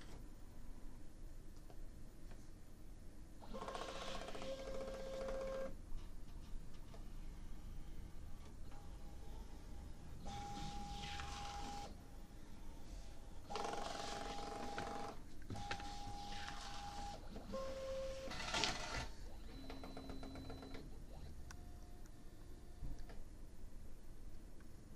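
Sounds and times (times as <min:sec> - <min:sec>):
label printer motors whirring: 0:03.5 - 0:05.6, 0:08.6 - 0:12.0, 0:13.4 - 0:21.4.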